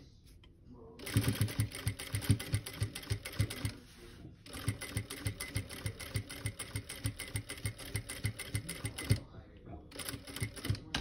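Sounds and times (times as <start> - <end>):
sewing machine stitching: 1.0 - 3.8, 4.5 - 9.3, 9.9 - 11.0.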